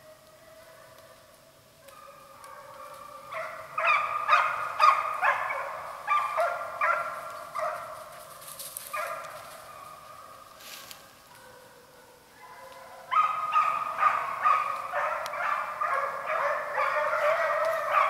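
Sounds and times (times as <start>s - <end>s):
hounds baying: 1.8s - 10.3s, 11.3s - 18.0s.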